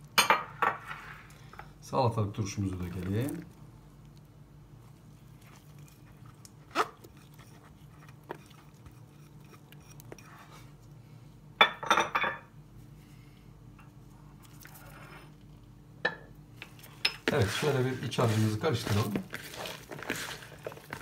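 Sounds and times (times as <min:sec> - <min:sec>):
low steady hum: 0:00.0 - 0:21.0
kitchenware clattering: 0:00.2 - 0:01.2, 0:11.6 - 0:12.5.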